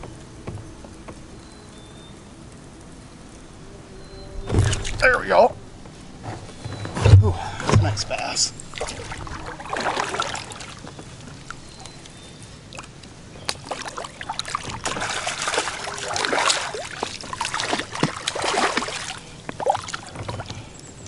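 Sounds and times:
water dribbling: 7.2 - 21.0
fish splashing in water: 8.2 - 12.0, 12.6 - 20.7.

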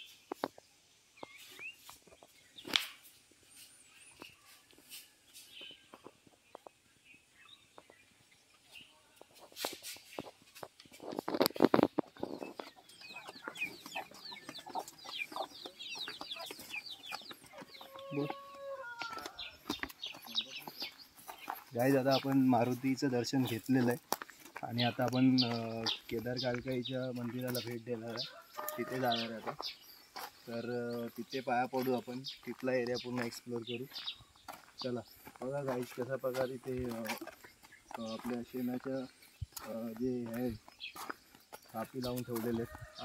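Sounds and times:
small birds chirping: 0.0 - 43.0
scuffing noise: 1.2 - 6.5, 8.7 - 43.0
chickens clucking: 9.1 - 43.0.

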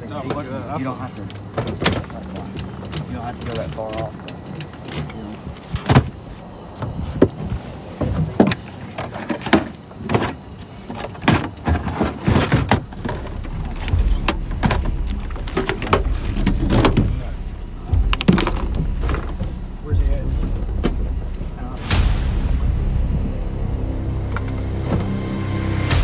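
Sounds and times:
footsteps and gear on boat deck: 0.0 - 21.5
low rumble: 12.6 - 26.0.

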